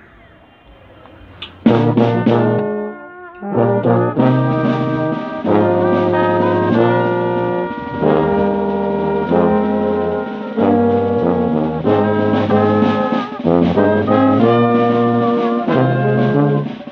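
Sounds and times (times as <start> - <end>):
brass band playing slow hymn: 1.3 - 16.9
sousaphone bass line: 6.1 - 10.3.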